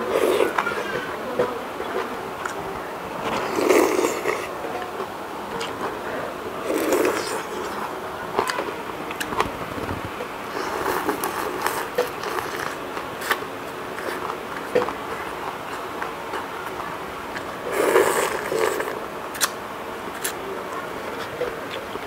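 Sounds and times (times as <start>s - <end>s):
slurping noodles: 0.0s - 0.8s, 3.2s - 4.5s, 6.6s - 7.9s, 10.4s - 13.4s, 17.6s - 19.5s
wet mouth smacks: 19.3s - 19.6s.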